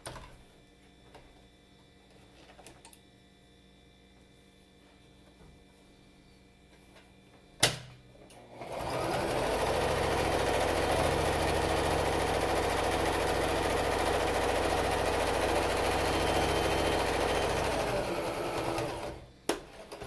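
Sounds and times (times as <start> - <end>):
sewing machine stitching fabric: 8.4 - 20.0.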